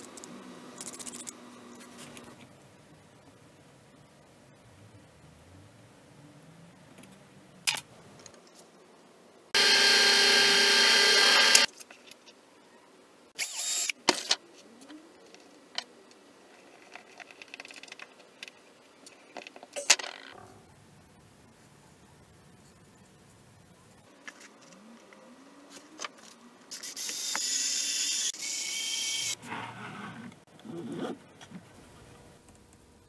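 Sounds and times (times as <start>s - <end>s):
power drill running: 9.6s - 11.7s.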